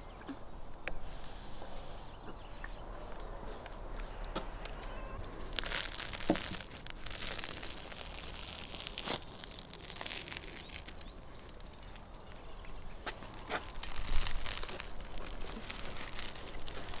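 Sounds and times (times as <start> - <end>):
bread crust crackling as torn: 5.2 - 17.0.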